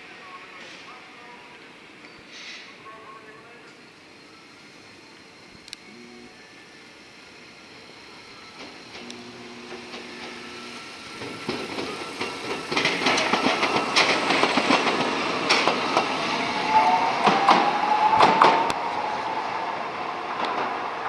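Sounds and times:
tram passing: 2.9 - 21.0
rising whine: 4.3 - 20.5
wheels clicking over rail joints: 11.2 - 16.1.

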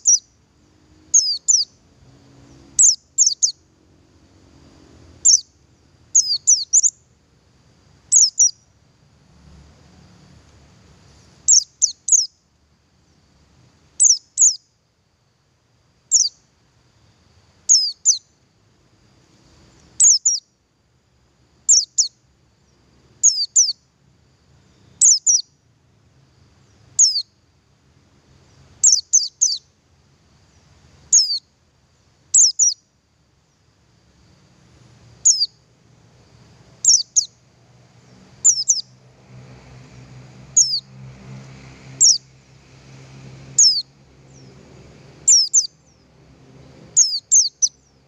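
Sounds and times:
bird calling high downward notes: 1.1 - 1.8, 2.4 - 3.6, 5.2 - 5.5, 8.1 - 8.6, 11.5 - 12.3, 35.2 - 35.6, 36.8 - 37.4, 38.0 - 39.0, 40.5 - 40.9, 42.0 - 42.3, 43.6 - 44.6, 45.2 - 46.1, 46.9 - 47.9.

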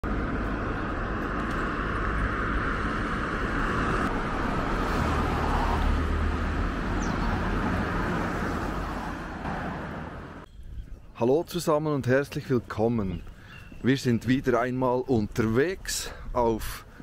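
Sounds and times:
car driving road noise: 0.0 - 10.5.

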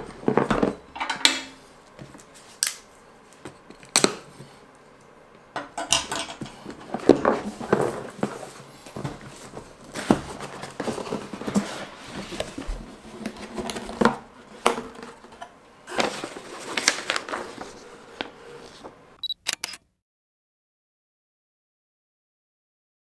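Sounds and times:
paper rustling: 6.9 - 19.0.

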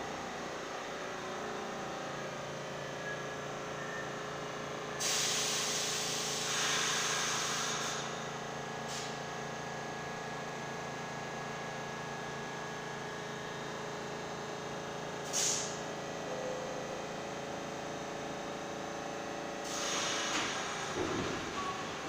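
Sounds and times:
subway train equipment humming: 0.0 - 5.0, 11.1 - 22.0
air hiss: 5.0 - 8.2, 15.2 - 15.8, 19.6 - 20.9
train moving off rush: 19.6 - 22.0.

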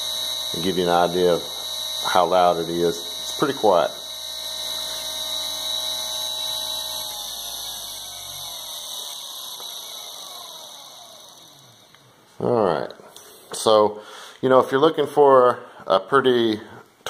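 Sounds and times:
electric motor whining: 0.0 - 12.2.

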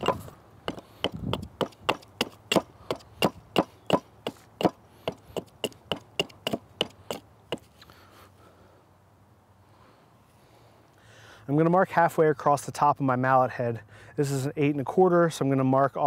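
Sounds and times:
hatchet chopping wood: 0.0 - 7.7.

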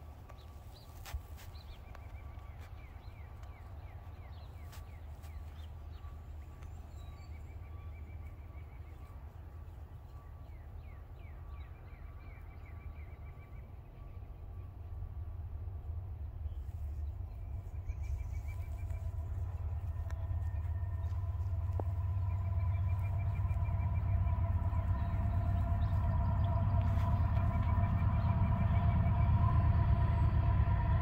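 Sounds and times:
small birds chirping: 0.2 - 13.6, 16.5 - 29.2
low rumble: 14.2 - 31.0.

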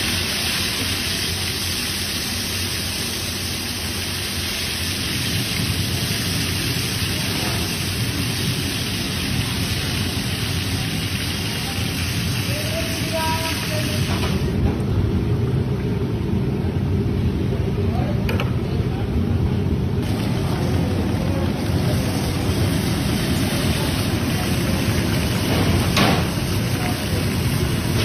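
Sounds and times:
batter sizzling in hot fat: 0.0 - 14.6, 20.0 - 28.0.

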